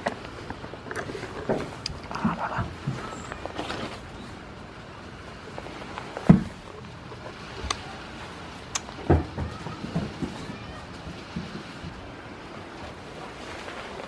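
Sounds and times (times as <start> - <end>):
faint rustling and handling noise: 0.0 - 14.0
dull thump: 6.3 - 6.6.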